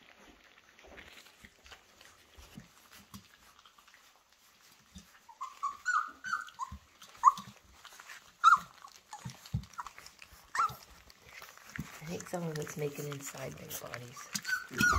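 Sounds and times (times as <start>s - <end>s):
puppies lapping and smacking: 0.0s - 14.9s
puppy whimpers: 5.0s - 12.1s, 14.1s - 14.9s
puppy yelps: 5.1s - 11.5s, 14.3s - 14.9s.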